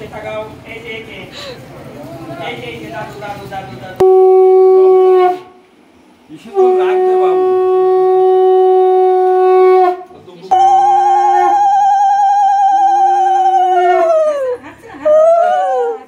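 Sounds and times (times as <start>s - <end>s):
conch shell blasts: 4.0s - 5.6s, 6.5s - 14.2s.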